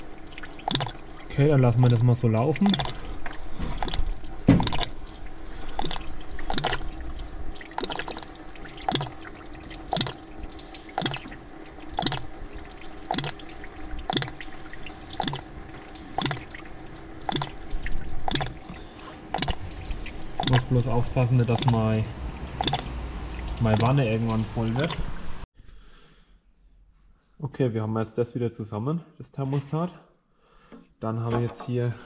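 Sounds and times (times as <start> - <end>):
coolant dripping into pan: 0.0 - 25.2.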